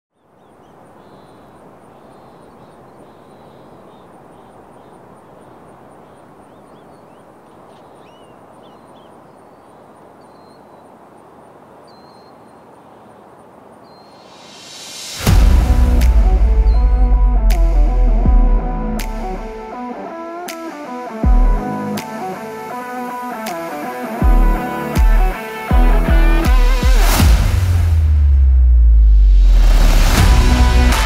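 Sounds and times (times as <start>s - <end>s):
small birds chirping: 0.1s - 14.5s
steady background hiss: 0.2s - 15.3s.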